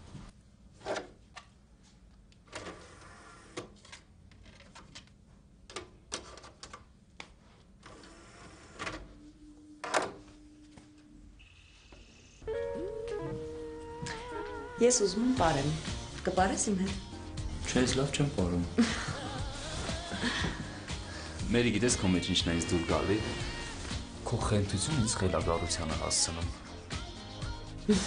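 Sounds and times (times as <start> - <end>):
brief higher tone: 9.2 - 14.8.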